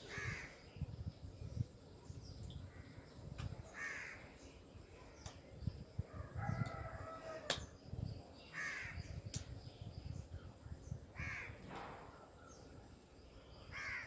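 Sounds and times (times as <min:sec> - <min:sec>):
bird cawing: 0:03.8 - 0:04.2, 0:11.2 - 0:11.6, 0:13.7 - 0:14.0.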